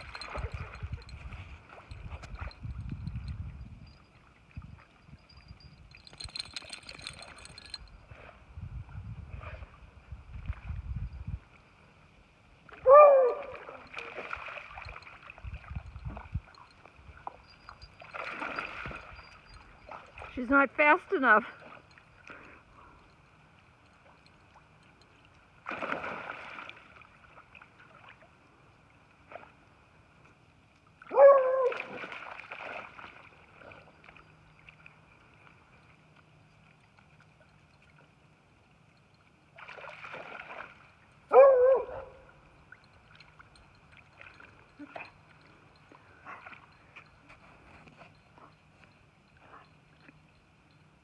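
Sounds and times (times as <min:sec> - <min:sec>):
dog splashing in water: 0:13.4 - 0:15.3, 0:18.0 - 0:20.4, 0:25.6 - 0:26.9, 0:31.7 - 0:33.8, 0:39.6 - 0:40.9
dog barking: 0:41.3 - 0:42.2.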